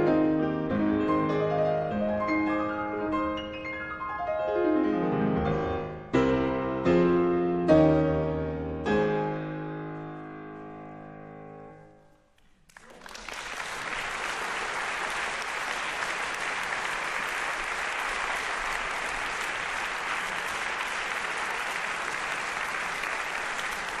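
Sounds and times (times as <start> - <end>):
audience applause: 12.6 - 24.0.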